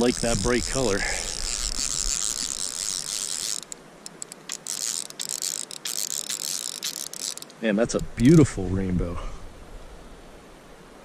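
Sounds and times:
fly reel drag ratcheting: 0.0s - 7.6s.

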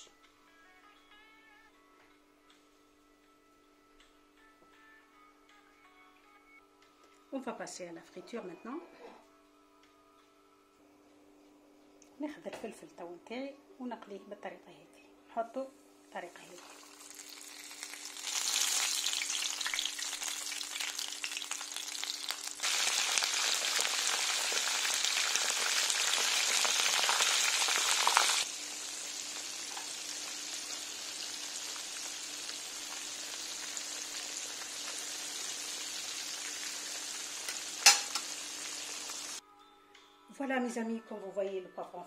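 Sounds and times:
peppers sizzling in hot oil: 16.4s - 39.4s.

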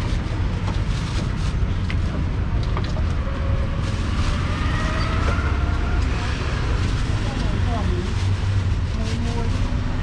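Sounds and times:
traffic rumble: 0.0s - 10.0s
engine revving: 3.7s - 7.1s.

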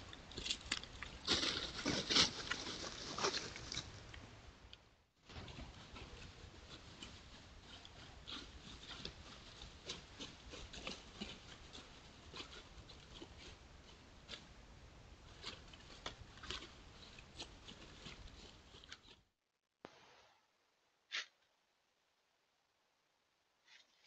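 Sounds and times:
steady low hiss: 0.0s - 7.6s
footsteps rustling in dry leaves: 1.2s - 4.0s.

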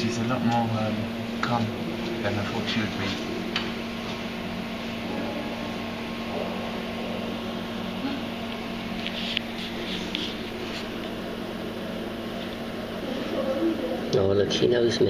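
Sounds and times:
mechanical hum: 0.0s - 15.0s.

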